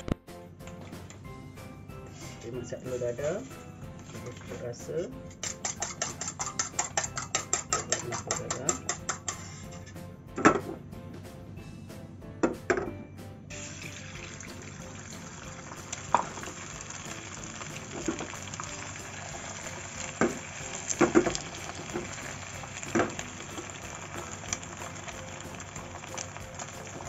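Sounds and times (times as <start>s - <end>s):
egg sizzling in a pan: 5.3s - 9.7s, 13.5s - 27.0s.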